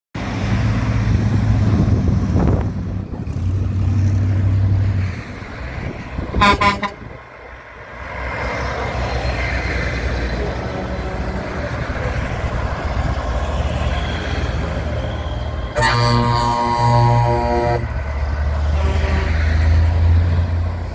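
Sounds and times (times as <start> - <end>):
semi truck engine passing: 0.2 - 20.9
short horn toot: 6.4 - 7.0, 15.6 - 18.0
hot rod engine passing: 7.9 - 20.9.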